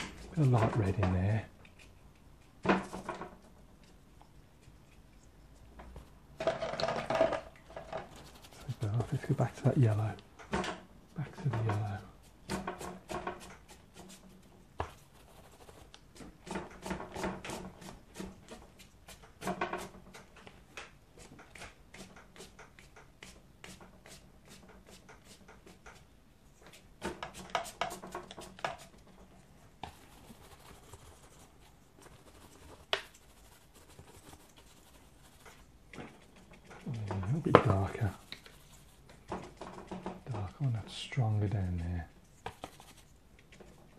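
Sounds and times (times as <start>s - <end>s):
brush scratching on paper: 7.9s - 10.2s, 11.4s - 20.0s, 21.2s - 26.0s, 29.7s - 39.6s, 40.6s - 43.8s.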